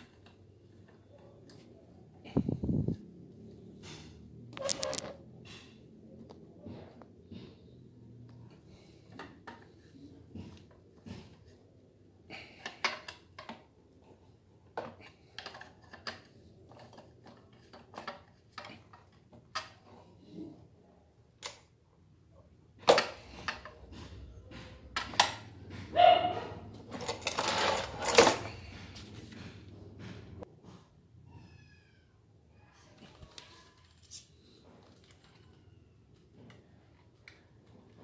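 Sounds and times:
small parts clicking and tapping: 0:12.6 - 0:13.7, 0:14.7 - 0:19.9, 0:33.0 - 0:38.0
knocking and scraping: 0:22.8 - 0:30.9.

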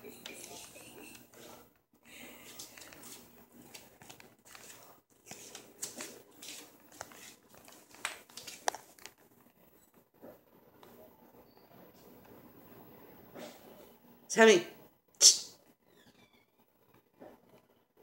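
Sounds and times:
crinkly clicks and scuffs: 0:02.4 - 0:10.0.

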